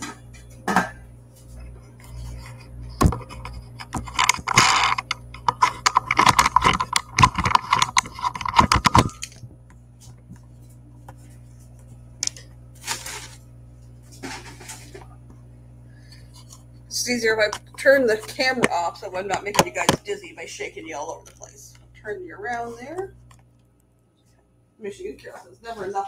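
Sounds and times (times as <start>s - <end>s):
microphone handling noise: 2.1s - 10.5s.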